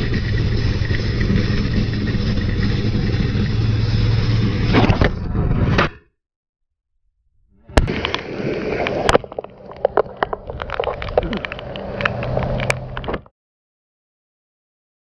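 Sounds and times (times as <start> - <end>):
wind noise: 7.6 - 13.3
rain: 7.9 - 13.2
sharp clicks and knocks: 8.8 - 13.3.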